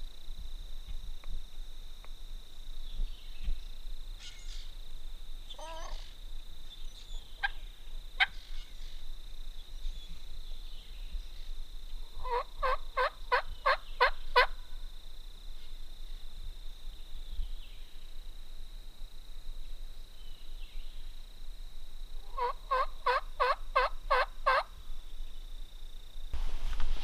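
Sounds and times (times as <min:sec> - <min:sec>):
turkey yelps: 0:05.6 - 0:06.0, 0:12.2 - 0:14.5, 0:22.4 - 0:24.7.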